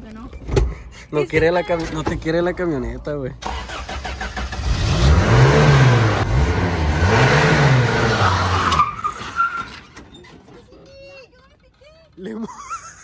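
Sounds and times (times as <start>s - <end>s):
truck engine revving: 3.4s - 10.0s.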